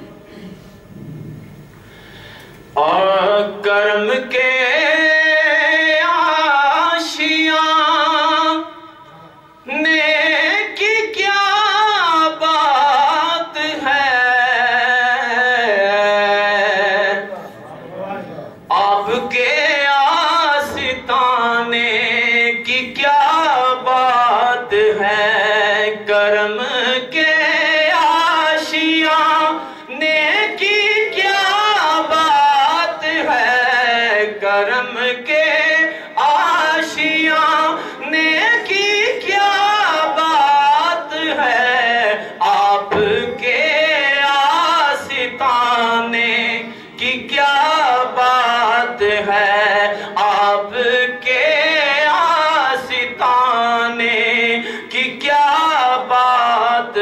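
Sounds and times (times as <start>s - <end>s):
man singing into a microphone: 2.8s - 17.4s, 18.7s - 57.0s.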